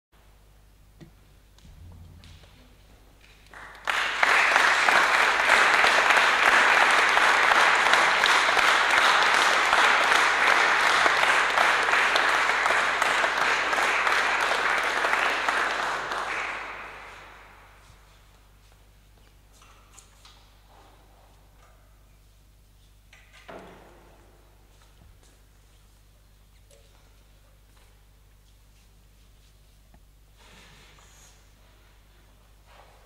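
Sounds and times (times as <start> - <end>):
audience applauding: 3.2 - 17.9.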